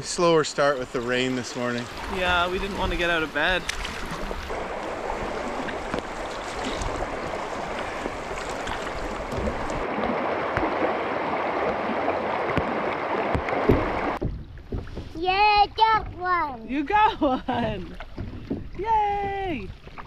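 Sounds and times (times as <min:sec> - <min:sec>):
river current rushing: 0:00.0 - 0:14.2
paddle splashing: 0:00.0 - 0:20.0.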